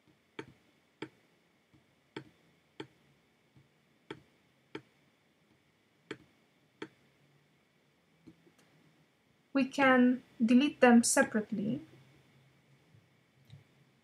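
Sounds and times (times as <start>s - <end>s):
computer mouse clicking: 0.4s - 3.0s, 4.1s - 4.9s, 6.1s - 7.0s.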